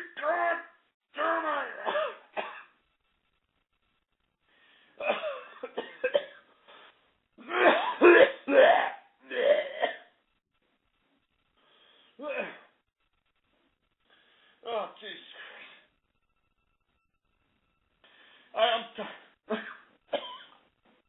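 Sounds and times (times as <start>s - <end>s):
person coughing: 1.8s - 2.7s, 5.0s - 6.4s, 7.4s - 10.1s, 18.6s - 20.6s.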